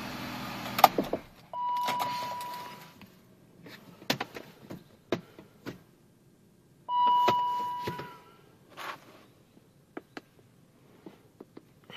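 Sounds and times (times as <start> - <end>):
dashboard chime tone: 6.9 - 8.2.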